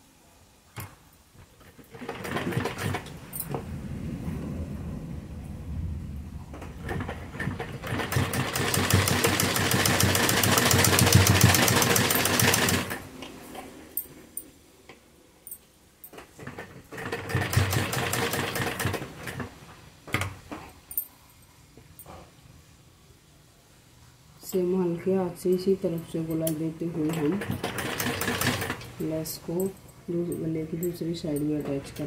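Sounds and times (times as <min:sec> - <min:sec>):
sewing machine stitching: 0:01.6 - 0:03.1, 0:06.8 - 0:13.0, 0:16.4 - 0:19.5, 0:27.0 - 0:28.9.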